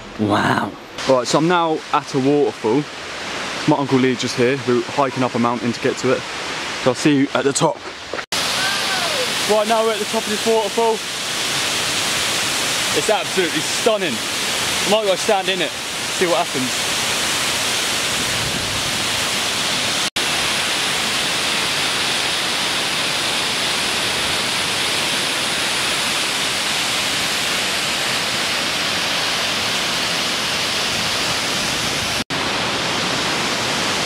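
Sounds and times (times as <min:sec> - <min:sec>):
waterfall rushing: 0:08.3 - 0:34.0.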